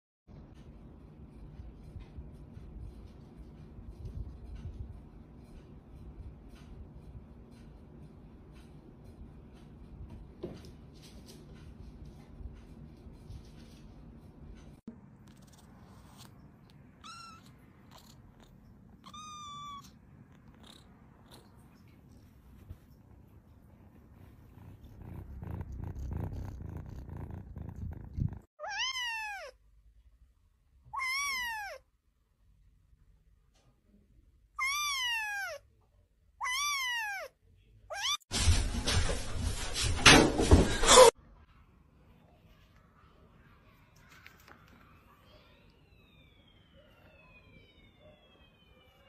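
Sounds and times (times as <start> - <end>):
kitten meowing: 17.0 - 18.1, 19.0 - 19.9, 28.6 - 29.6, 30.9 - 31.8, 34.6 - 35.6, 36.4 - 37.3, 37.9 - 38.2.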